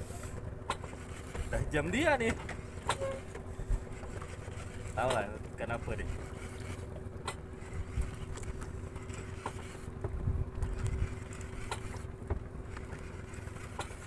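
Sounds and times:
engine running steadily: 0:00.0 - 0:14.0
faint clicks and knocks: 0:06.6 - 0:14.0.

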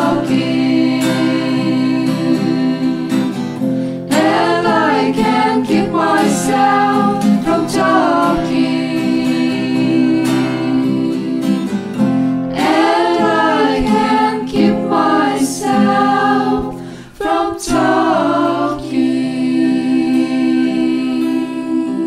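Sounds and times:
layered singing voices: 0:00.0 - 0:22.0
plucked guitar: 0:00.0 - 0:22.0.

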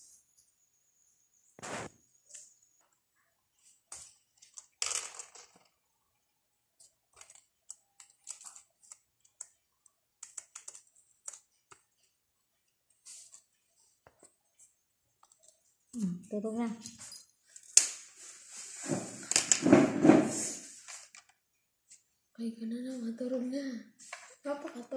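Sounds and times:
pencils clicking on a table: 0:03.9 - 0:05.9, 0:06.8 - 0:12.2, 0:15.2 - 0:16.0, 0:19.3 - 0:19.7, 0:20.3 - 0:21.4.

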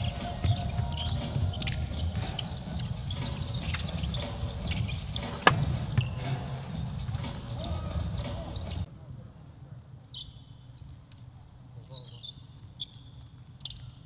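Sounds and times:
basketball bouncing on court: 0:04.8 - 0:06.2.

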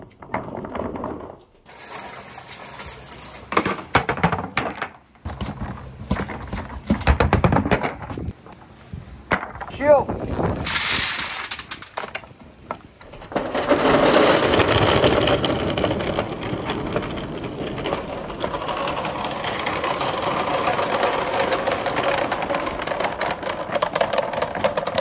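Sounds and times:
balls rattling down a gutter: 0:00.0 - 0:09.8, 0:10.6 - 0:25.0.

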